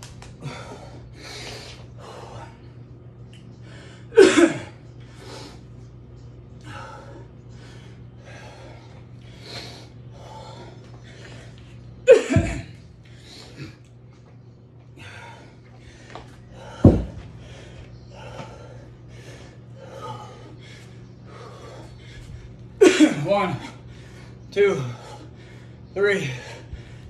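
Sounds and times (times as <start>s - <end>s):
man panting heavily: 0.3s - 2.8s, 6.6s - 12.0s, 14.9s - 27.0s.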